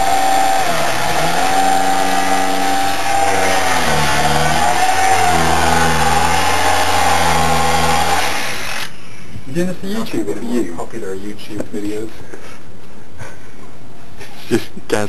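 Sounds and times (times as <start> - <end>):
angle grinder cutting metal: 0.0 - 8.9.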